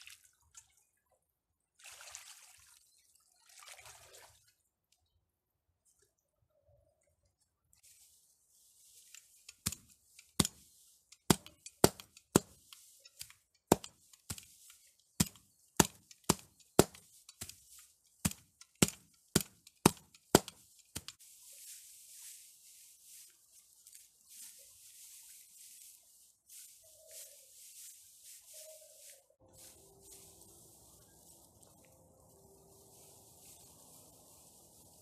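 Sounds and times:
straw rustling: 7.7 - 35.0
sickle chopping dry straw: 8.8 - 25.0, 26.5 - 31.9.

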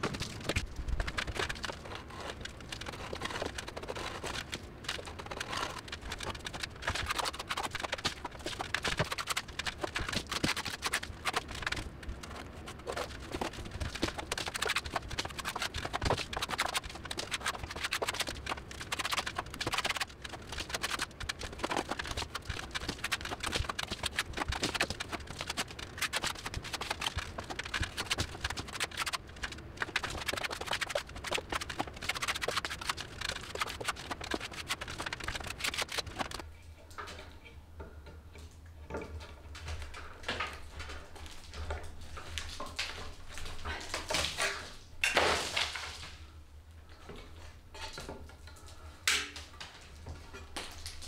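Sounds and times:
trowel scraping and tapping wall: 0.0 - 36.5.

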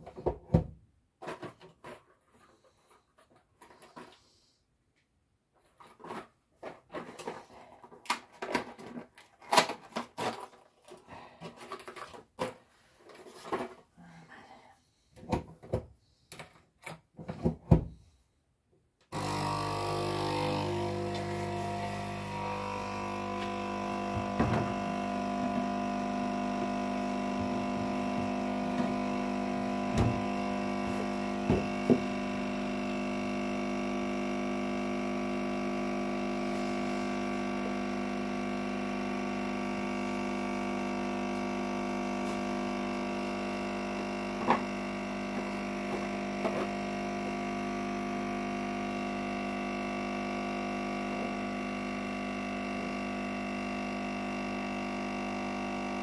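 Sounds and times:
kitchen appliance humming: 19.1 - 56.0.

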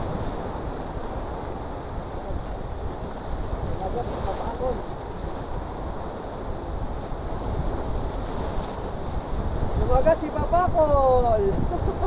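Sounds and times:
surf breaking over rocks: 0.0 - 12.0
wind on microphone: 0.0 - 12.0.

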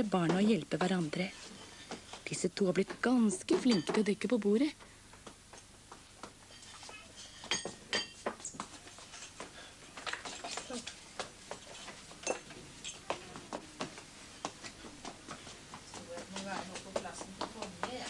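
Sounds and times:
cups and plates clattering: 6.5 - 8.3.

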